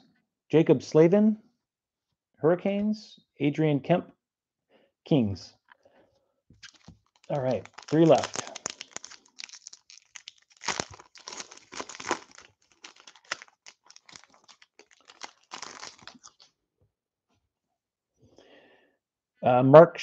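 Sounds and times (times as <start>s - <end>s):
foil wrapper crinkling: 6.6s - 16.5s.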